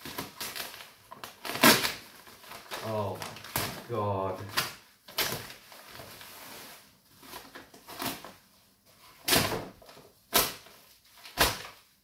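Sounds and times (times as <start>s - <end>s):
packing tape ripping: 0.0s - 5.9s, 9.2s - 11.8s
plastic wrapping rustling: 0.0s - 12.0s.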